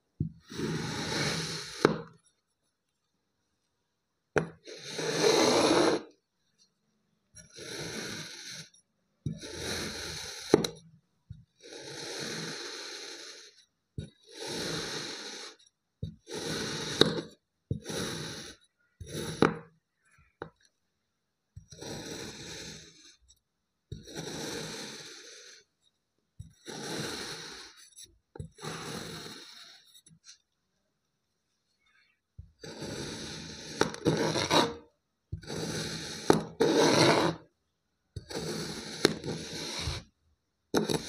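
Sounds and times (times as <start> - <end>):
knife cutting through sand: 16.3 - 19.5, 26.7 - 27.8, 32.6 - 34.8, 35.4 - 37.4.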